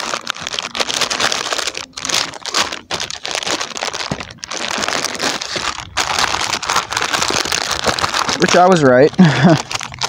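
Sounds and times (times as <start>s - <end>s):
plastic packets crinkling: 0.0s - 10.0s.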